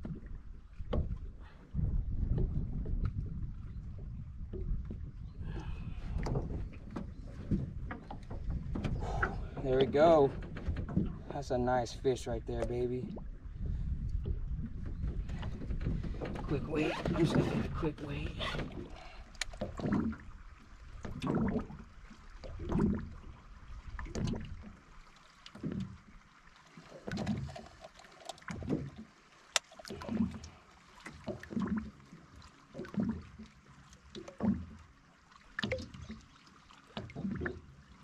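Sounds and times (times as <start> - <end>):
small waves lapping against boat hull: 0.0 - 38.0.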